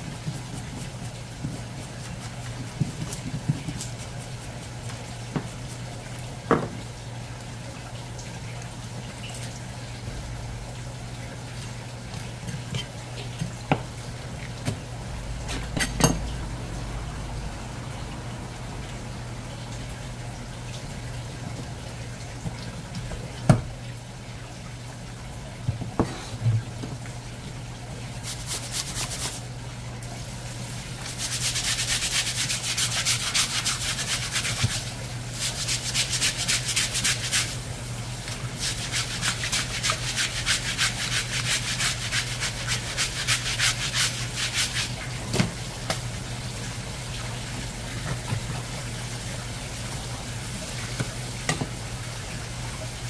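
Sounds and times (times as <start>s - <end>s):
low hum: 13.9s - 22.2s.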